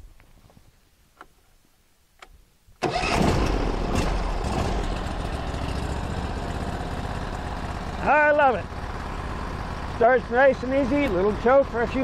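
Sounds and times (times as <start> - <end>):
gasoline engine starting and running: 2.8 - 12.0.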